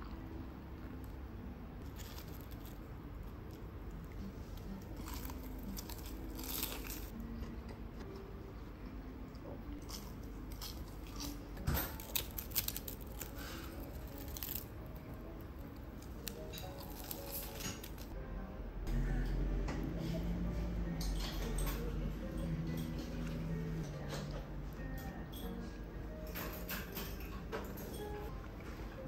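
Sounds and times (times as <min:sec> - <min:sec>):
crunchy chewing: 0:01.8 - 0:07.6, 0:09.7 - 0:15.1, 0:15.7 - 0:18.1.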